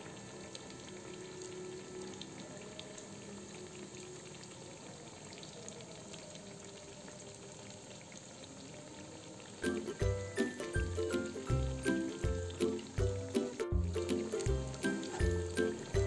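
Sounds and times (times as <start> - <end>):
food sizzling in hot oil: 9.3 - 16.0.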